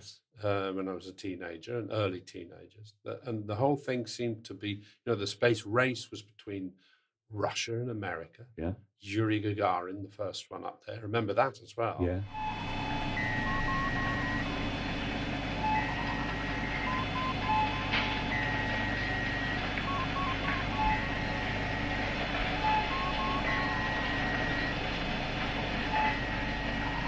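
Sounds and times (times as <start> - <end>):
low electronic hum and hiss: 12.0 - 27.0
electronic beeps and bleeps: 12.3 - 27.0.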